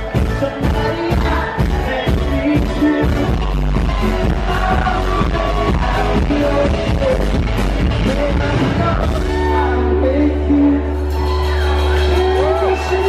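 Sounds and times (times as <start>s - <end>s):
driving drumbeat: 0.0s - 9.5s
person singing: 0.0s - 13.0s.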